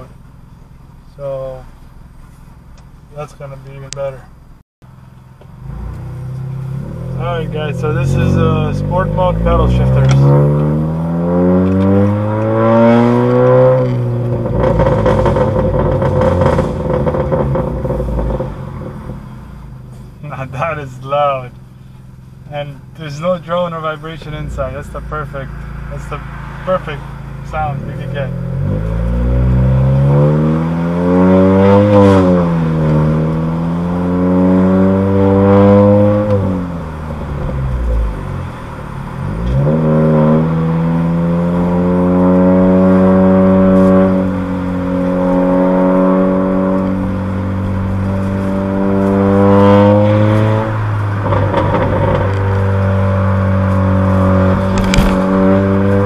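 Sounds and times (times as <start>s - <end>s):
car engine revving: 0.0s - 56.0s
crackling exhaust: 0.0s - 56.0s.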